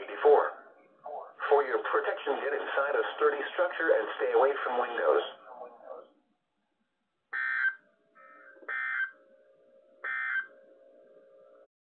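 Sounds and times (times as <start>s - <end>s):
buzzing digital data tone bursts: 7.4s - 9.2s, 10.0s - 10.5s.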